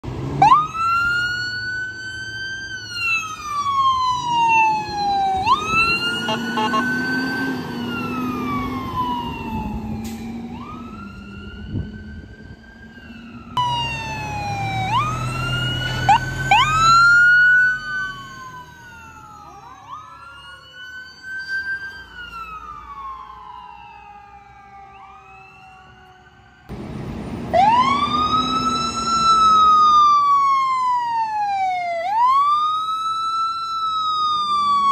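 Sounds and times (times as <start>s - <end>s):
emergency vehicle sirens wailing: 0.0s - 34.9s
low vehicle rumble: 22.0s - 32.6s.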